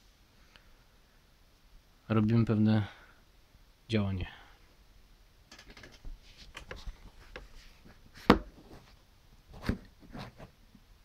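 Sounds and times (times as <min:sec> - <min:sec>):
taps and rustles on wooden desk: 0:08.2 - 0:08.8.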